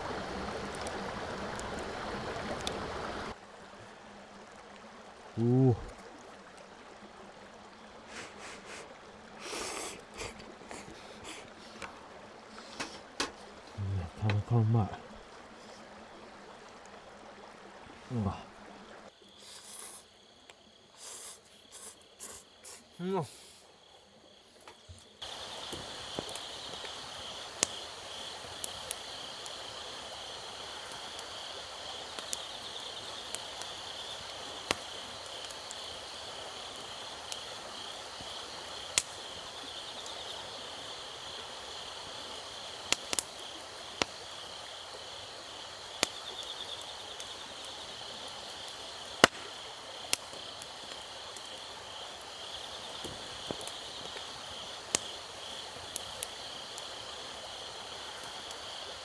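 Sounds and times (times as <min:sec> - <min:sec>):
wood fire crackling and popping: 0:00.0 - 0:03.4, 0:24.6 - 0:58.7
insects trilling: 0:05.4 - 0:59.0.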